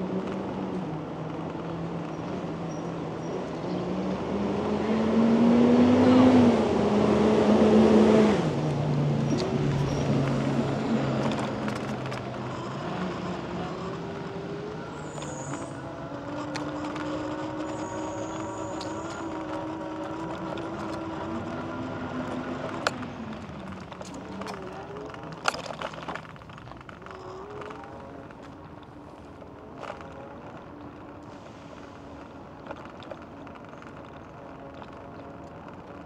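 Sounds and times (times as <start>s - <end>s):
vehicle rolling on rough path: 0.0s - 36.0s.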